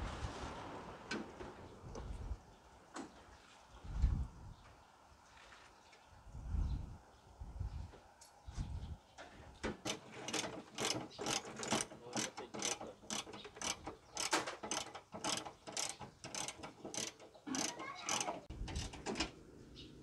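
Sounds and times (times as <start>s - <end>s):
ratchet wrench clicking: 9.9s - 19.1s.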